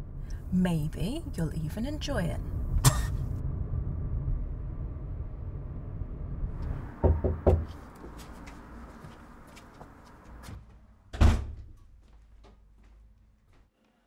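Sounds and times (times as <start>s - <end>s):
car driving rumble: 0.0s - 11.0s
knocks on a door: 7.0s - 7.7s.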